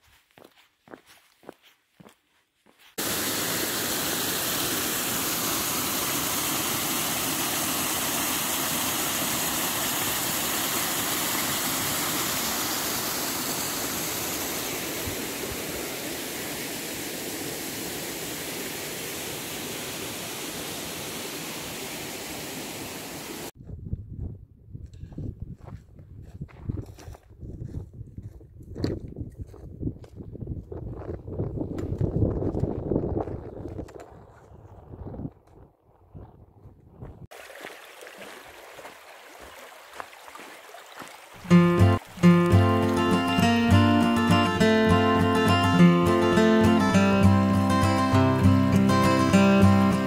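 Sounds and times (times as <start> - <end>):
water rushing in a channel: 3.0 - 23.5, 37.3 - 47.0.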